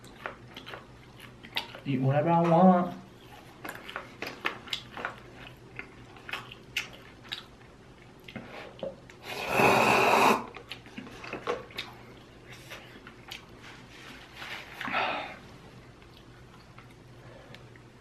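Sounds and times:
wet chewing and mouth smacks: 0.0s - 1.9s, 3.1s - 9.2s, 10.5s - 13.6s, 15.8s - 17.9s.

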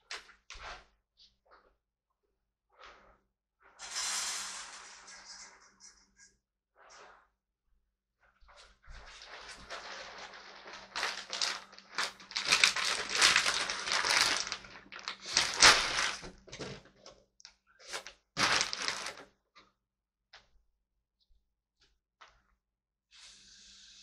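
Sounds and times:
rustling and crackling: 8.9s - 17.0s, 17.9s - 19.2s.

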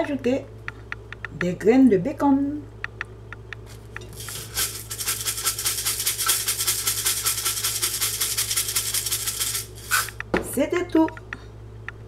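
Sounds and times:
shaker bottle rattling: 3.7s - 10.2s.

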